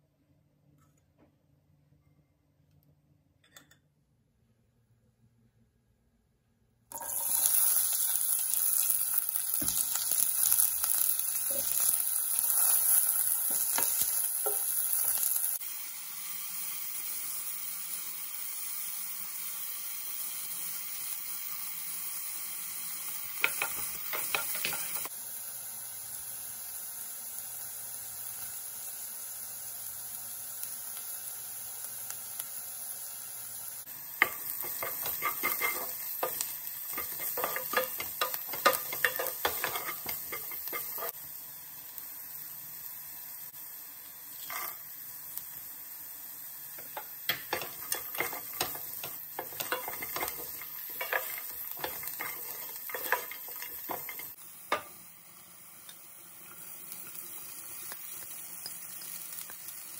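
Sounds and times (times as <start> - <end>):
onions sizzling in hot oil: 6.9 - 59.9
wooden spatula scraping pan: 34.2 - 41.1, 46.9 - 54.4.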